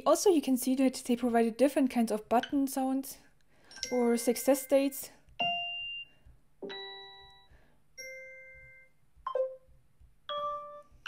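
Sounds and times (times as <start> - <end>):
bell-like notification chimes: 3.8 - 9.6.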